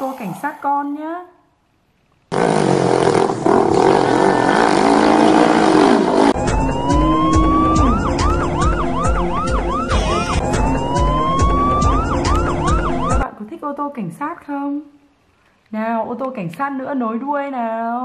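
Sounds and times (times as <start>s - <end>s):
police siren wailing and yelping: 6.4s - 13.2s.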